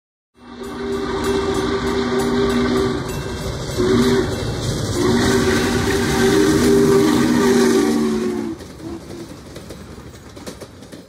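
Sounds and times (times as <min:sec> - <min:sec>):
steam whistle blowing: 0:00.4 - 0:09.0
moving train noise: 0:00.4 - 0:11.0.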